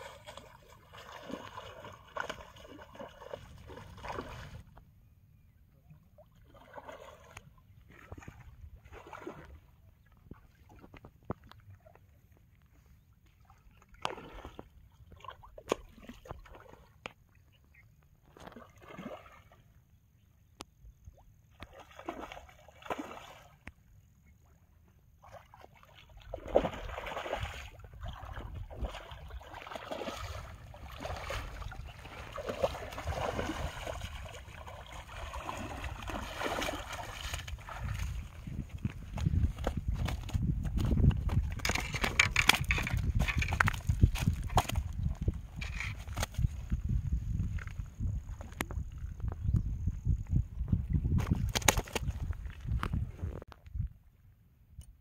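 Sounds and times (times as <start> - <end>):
water sloshing: 0.0 - 4.8, 21.5 - 23.7, 25.2 - 46.4
fish thrashing and splashing: 26.2 - 38.4.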